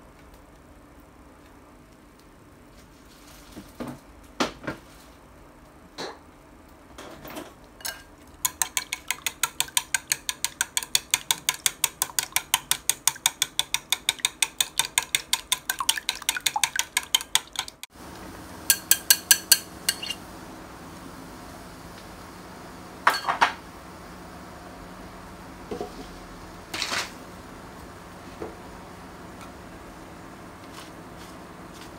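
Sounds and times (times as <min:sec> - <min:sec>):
chopsticks beating eggs in bowl: 0:07.9 - 0:17.9, 0:18.7 - 0:20.2
egg mixture frying hiss: 0:08.0 - 0:20.2.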